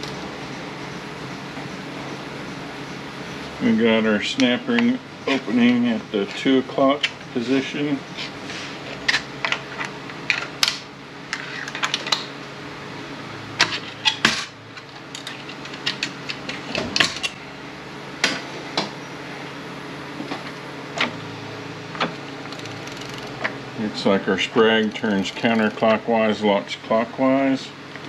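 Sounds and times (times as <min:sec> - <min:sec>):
metal parts clicking and clinking: 0:14.8 - 0:16.4.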